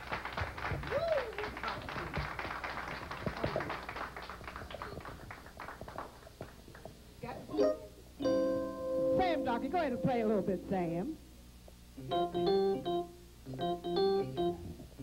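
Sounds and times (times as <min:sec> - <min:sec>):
scattered hand clapping: 0:00.0 - 0:07.0.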